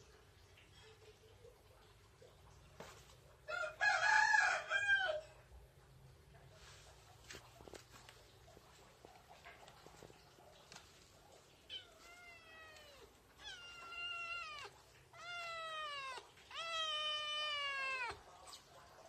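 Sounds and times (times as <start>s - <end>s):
kitten meowing: 11.7s - 18.2s.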